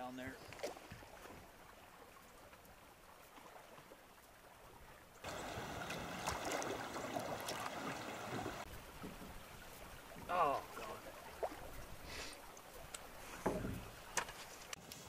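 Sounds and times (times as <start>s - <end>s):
river water running: 0.0s - 15.0s
fish splashing at surface: 5.3s - 8.7s.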